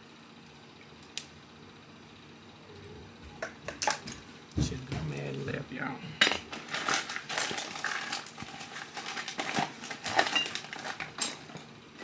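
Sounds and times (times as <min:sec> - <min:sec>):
packaging rustling and crinkling: 0:06.5 - 0:11.7.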